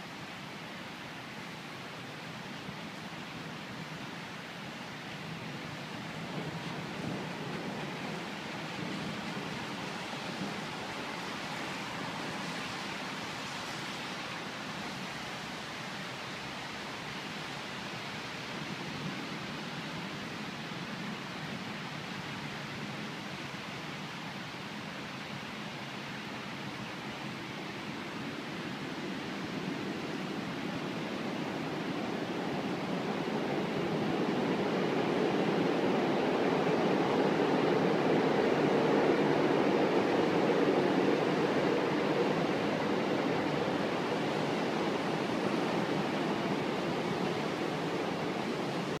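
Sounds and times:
thunderstorm rushing noise: 5.8s - 12.8s, 27.9s - 49.0s.

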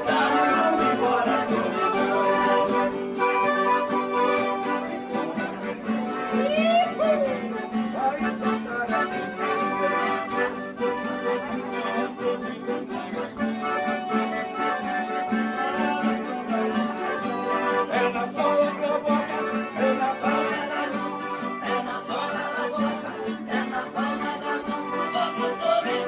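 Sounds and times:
accordion notes: 0.0s - 26.0s
acoustic guitars strumming: 0.0s - 26.0s.

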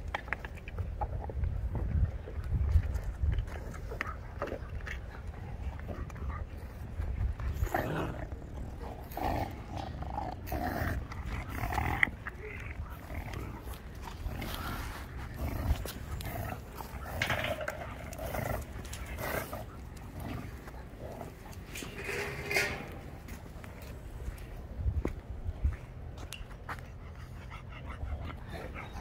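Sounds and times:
small clicks and scuffs: 0.0s - 7.7s, 11.0s - 27.4s
puppies growling and grunting: 7.4s - 23.2s.

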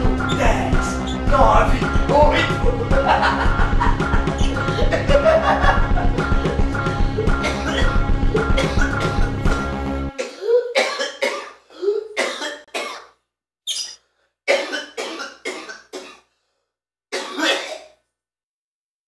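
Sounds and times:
rock music: 0.0s - 10.2s
man coughing hard: 1.8s - 5.2s, 5.8s - 9.4s, 10.2s - 13.1s, 14.5s - 16.3s, 17.2s - 17.9s.

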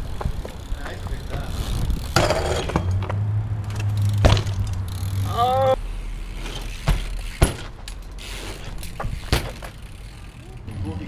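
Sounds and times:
bike grinding on concrete ledge: 0.0s - 11.0s
bike knocks on concrete: 2.1s - 4.8s, 6.4s - 8.0s, 8.6s - 9.9s
person shouting: 5.2s - 5.8s.

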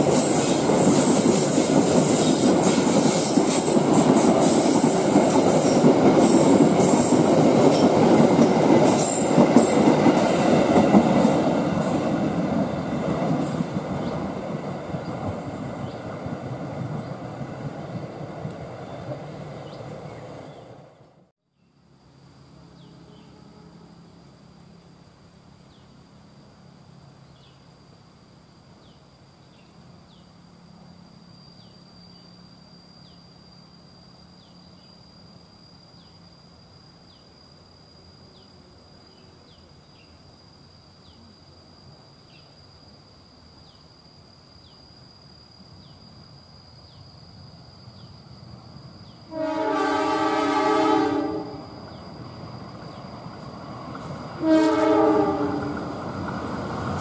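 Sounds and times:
high insect drone: 0.0s - 57.0s
locomotive horn blast: 49.3s - 51.7s, 54.4s - 55.8s.

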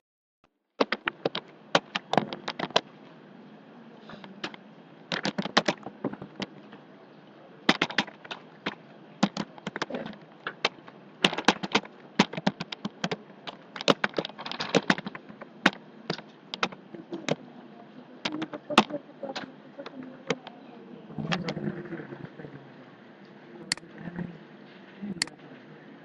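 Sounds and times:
typing on computer keyboard: 4.4s - 6.5s, 7.7s - 17.4s.

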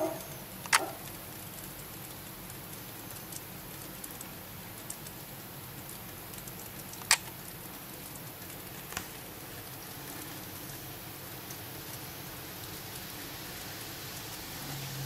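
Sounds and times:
rain drop ticks: 0.0s - 14.5s
rain hissing: 0.0s - 15.0s
sharp click: 0.6s - 0.9s, 7.0s - 7.3s.

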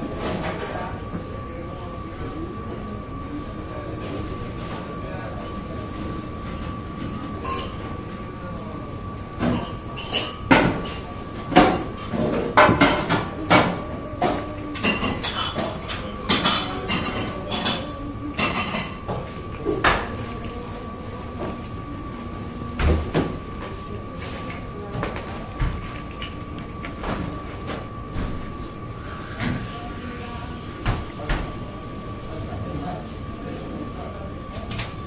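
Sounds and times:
high-pitched hum: 12.8s - 30.9s.

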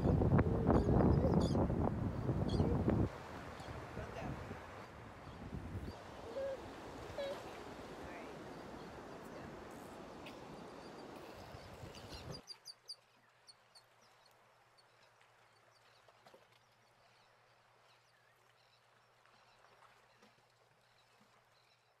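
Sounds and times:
surf: 0.0s - 12.4s
wind: 0.0s - 22.0s.

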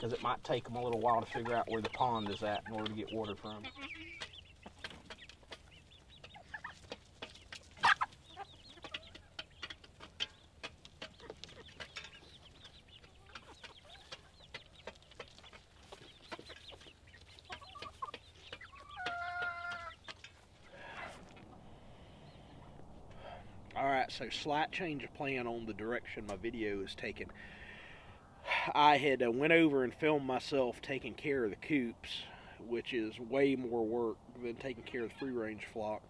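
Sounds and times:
chickens clucking and calling: 0.0s - 30.4s, 31.5s - 36.0s
drawn-out chicken call: 0.2s - 23.6s.

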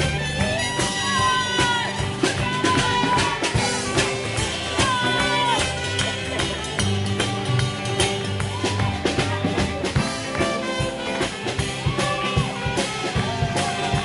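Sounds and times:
live band dance music: 0.0s - 14.0s
steady drum beat: 0.0s - 14.0s.

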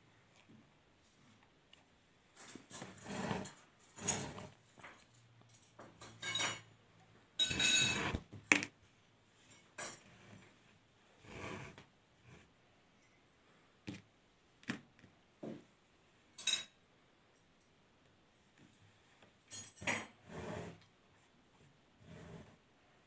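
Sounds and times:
light knocks and clinks: 4.8s - 6.7s.

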